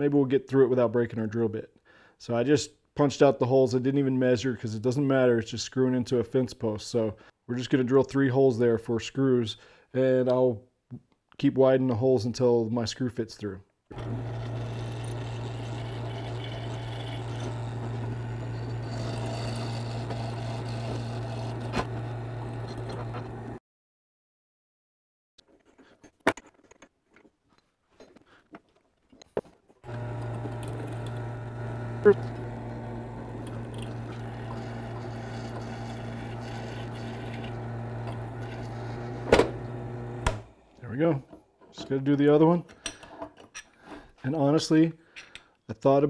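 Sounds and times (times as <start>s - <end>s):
drill press humming: 13.9s - 23.6s, 29.8s - 40.6s.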